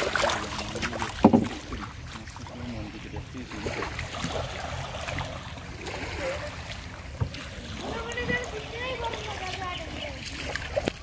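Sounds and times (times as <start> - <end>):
loud water splash: 0.0 - 2.8
floodwater sloshing: 0.0 - 11.0.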